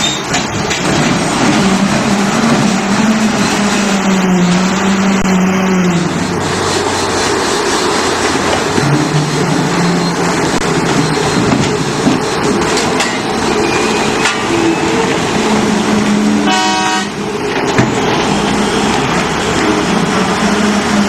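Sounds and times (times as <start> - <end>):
heavy machinery noise: 0.0 - 21.0
short horn toot: 16.5 - 17.2.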